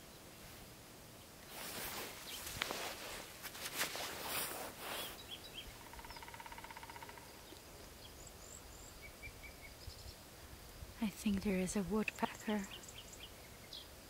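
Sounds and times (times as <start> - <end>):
faint high bird chirps: 4.9 - 10.2
woodpecker drumming on wood: 5.7 - 7.6.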